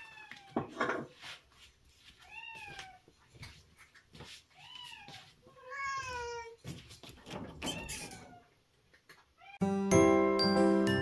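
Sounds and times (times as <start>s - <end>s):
cat meowing: 2.2s - 3.0s, 4.6s - 6.6s, 7.6s - 8.6s.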